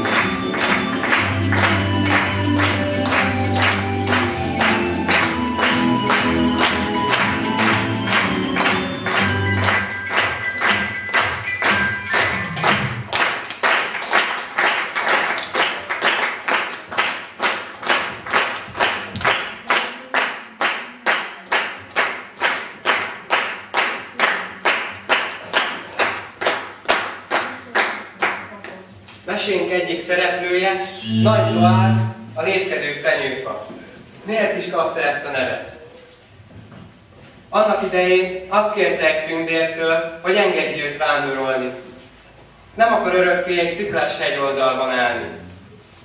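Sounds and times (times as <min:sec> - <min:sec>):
audience clapping in rhythm: 0:00.0 - 0:29.2
song with singing and accompaniment: 0:30.6 - 0:32.7.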